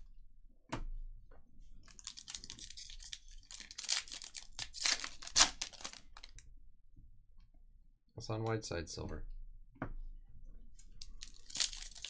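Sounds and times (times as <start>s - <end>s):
foil wrapper crackling: 1.8s - 6.4s, 11.0s - 12.0s
foil wrapper ripping: 1.8s - 6.4s, 11.2s - 12.0s.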